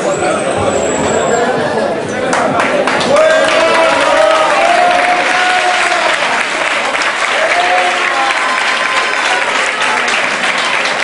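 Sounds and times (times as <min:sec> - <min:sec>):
crowd applauding: 0:02.2 - 0:11.0.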